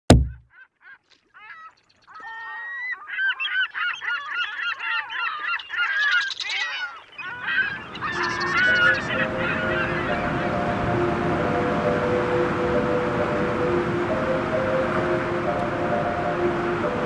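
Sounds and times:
low thump: 0.1s - 0.4s
flock of birds calling: 0.5s - 17.0s.

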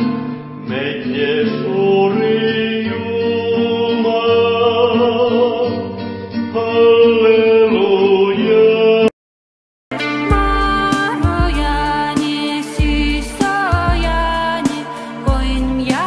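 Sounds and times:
instrumental accompaniment: 9.9s - 16.0s
person singing long wavering notes: 9.9s - 16.0s.

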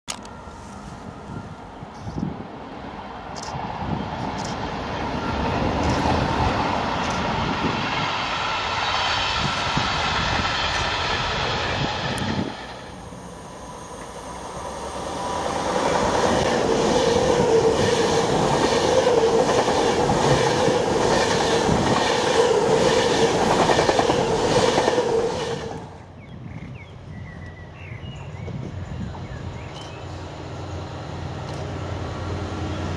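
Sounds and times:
diesel locomotives hauling freight: 0.1s - 32.9s
electric train passing at speed: 0.1s - 32.9s
train wheels clattering on rails: 15.8s - 25.9s.

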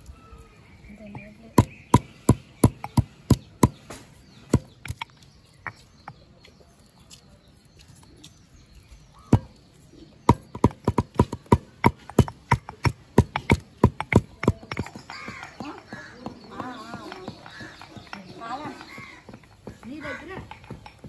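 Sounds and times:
stone pestle pounding in mortar: 1.1s - 6.2s, 9.2s - 9.6s, 10.2s - 21.0s.

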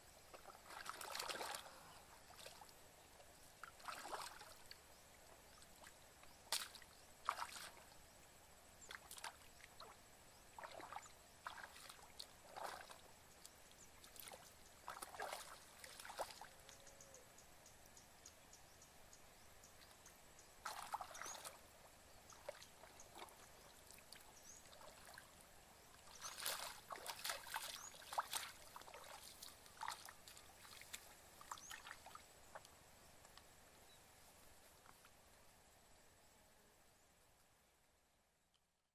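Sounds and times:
shallow water sloshing and splashing: 0.3s - 2.8s, 3.6s - 4.8s, 5.5s - 7.9s, 8.8s - 13.1s, 14.0s - 16.5s, 20.6s - 21.7s, 22.3s - 32.7s.

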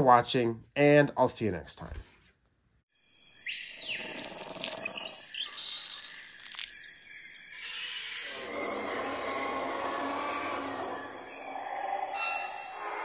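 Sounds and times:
bird calls and chirps: 3.0s - 13.0s.

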